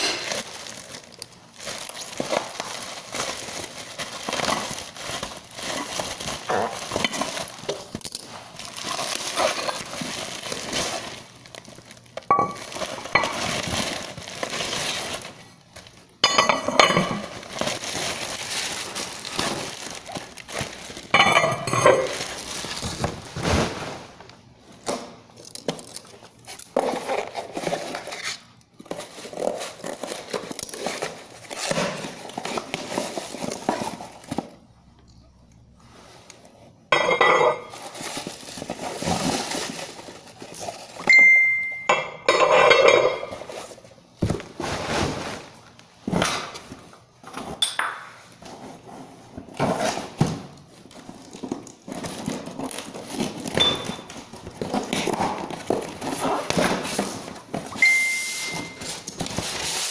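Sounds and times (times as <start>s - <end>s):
bubble wrap crinkling: 0.0s - 34.8s, 35.7s - 41.1s, 43.1s - 47.4s, 48.2s - 59.9s
dishware clinking: 12.3s - 13.5s, 16.2s - 17.3s, 21.1s - 22.2s, 41.1s - 43.4s, 47.6s - 48.1s, 57.8s - 58.8s.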